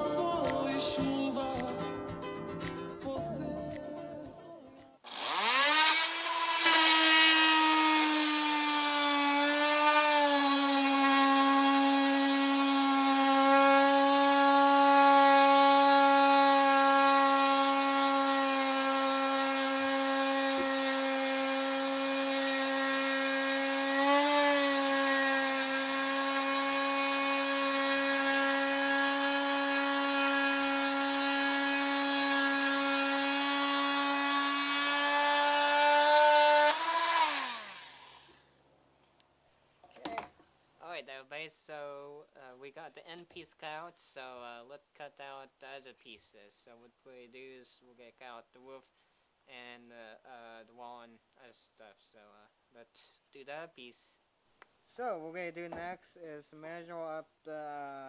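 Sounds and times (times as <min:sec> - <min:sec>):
rotary tool cutting wood: 0:05.1 - 0:38.4.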